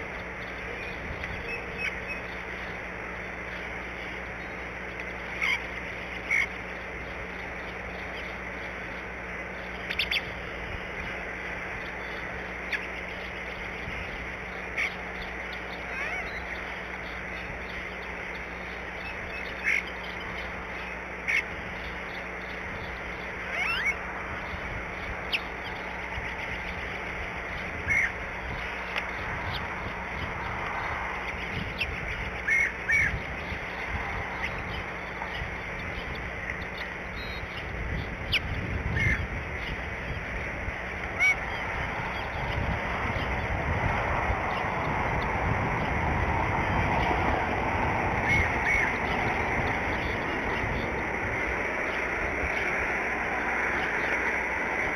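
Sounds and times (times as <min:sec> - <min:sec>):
steady outdoor hiss: 0:00.0 - 0:54.9
short bird calls: 0:14.4 - 0:24.6.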